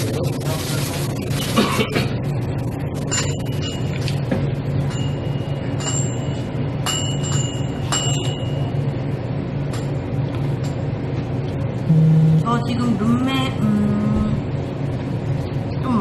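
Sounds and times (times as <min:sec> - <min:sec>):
low background hum: 0:00.0 - 0:16.0
utensils clinking against bowl: 0:04.8 - 0:08.7.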